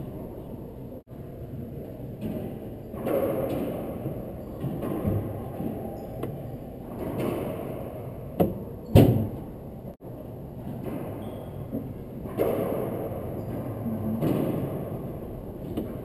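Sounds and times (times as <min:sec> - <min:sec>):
ball hitting racket and walls: 0:02.2 - 0:09.5, 0:10.6 - 0:16.0.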